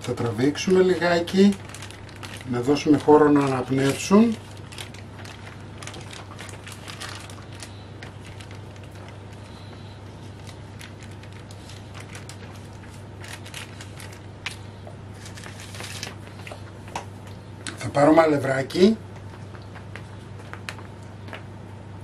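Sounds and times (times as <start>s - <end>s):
parchment paper rustling: 0.0s - 17.0s.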